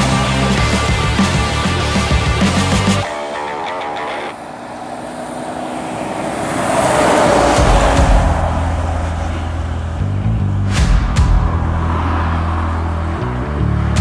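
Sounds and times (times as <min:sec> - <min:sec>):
truck passing by: 0:00.0 - 0:14.0
steady low bass: 0:07.6 - 0:14.0.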